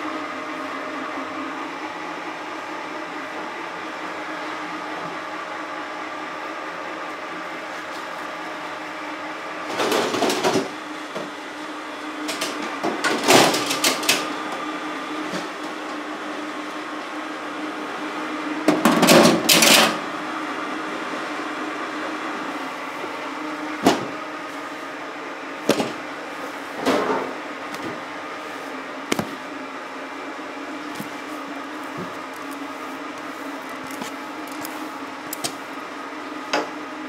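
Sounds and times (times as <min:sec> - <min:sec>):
machinery humming: 0:00.0 - 0:37.0.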